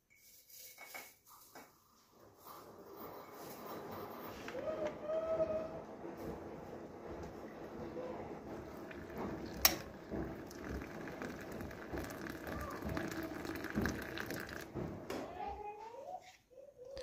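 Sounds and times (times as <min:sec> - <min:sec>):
hot water pouring into teapot: 0:08.4 - 0:14.8.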